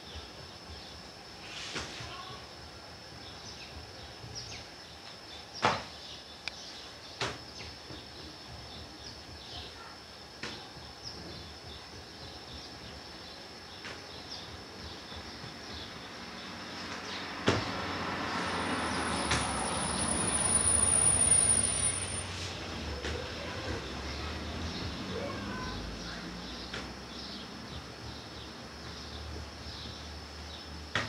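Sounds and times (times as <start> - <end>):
background hiss: 0.0 - 31.0.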